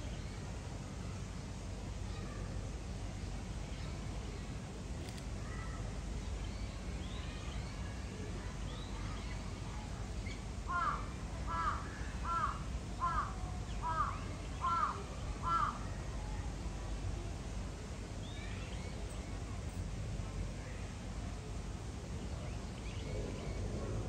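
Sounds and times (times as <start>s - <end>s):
low outdoor background noise: 0.0s - 24.0s
faint small-bird chirps: 5.0s - 9.5s, 18.2s - 19.8s
crow cawing: 10.7s - 15.8s.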